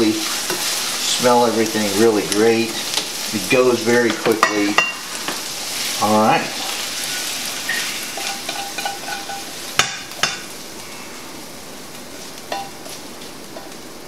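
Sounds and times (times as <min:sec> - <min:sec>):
glaze sizzling in frying pan: 0:00.0 - 0:14.0
metal tongs clinking on pan: 0:07.7 - 0:10.5, 0:12.5 - 0:12.8.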